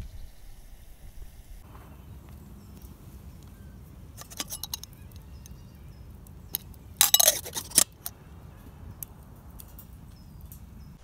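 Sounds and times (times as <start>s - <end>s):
metal pots clinking and clattering: 4.2s - 4.9s, 7.0s - 8.1s.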